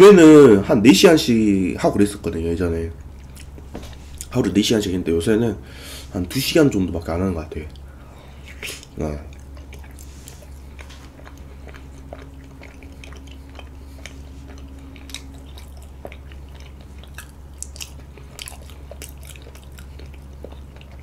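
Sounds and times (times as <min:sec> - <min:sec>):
steady low hum: 0:00.0 - 0:21.0
chewing with wet mouth clicks: 0:03.0 - 0:04.4, 0:07.7 - 0:07.9, 0:08.5 - 0:21.0.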